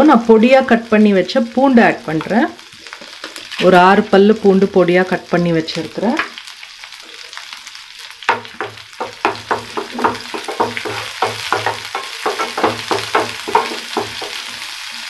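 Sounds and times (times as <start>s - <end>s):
garlic sizzling in butter: 0.0s - 15.0s
wooden spatula scraping pan: 9.2s - 14.6s.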